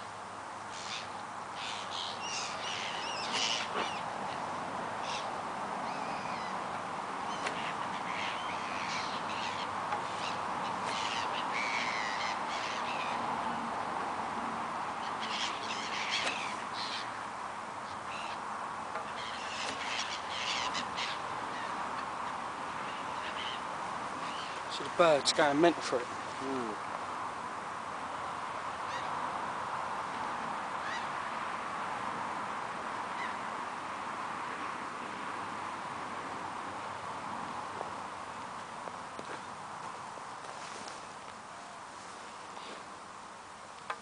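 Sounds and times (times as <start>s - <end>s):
steady background hiss: 0.0s - 44.0s
flock of birds calling: 0.7s - 13.6s, 14.9s - 25.6s, 28.8s - 29.3s, 30.7s - 31.4s, 33.1s - 33.5s.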